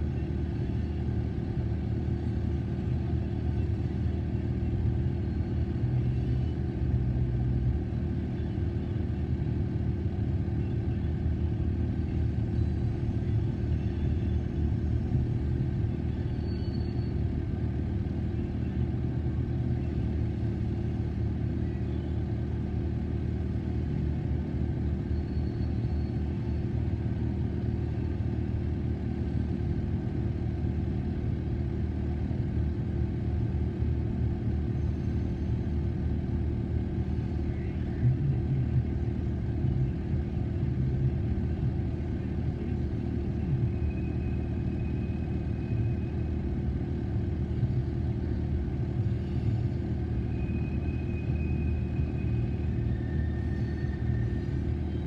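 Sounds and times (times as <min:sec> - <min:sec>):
freight train cars rumbling past: 0:49.0 - 0:55.0.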